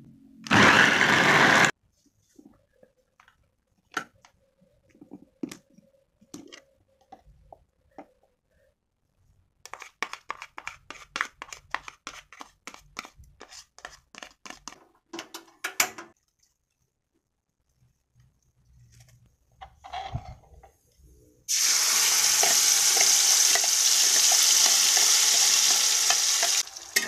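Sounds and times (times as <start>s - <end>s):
scraping paste from bowl: 9.6s - 14.8s.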